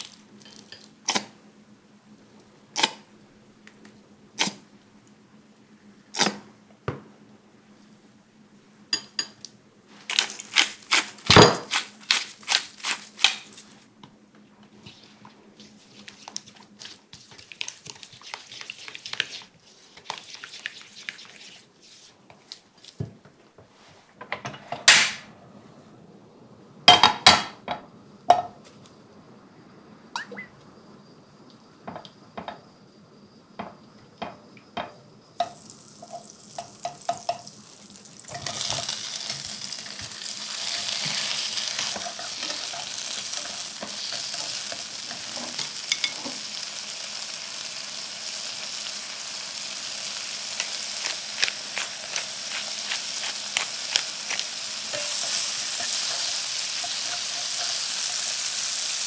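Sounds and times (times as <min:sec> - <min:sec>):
frying sizzle in a pan: 0:00.0 - 0:00.9, 0:34.2 - 0:59.0.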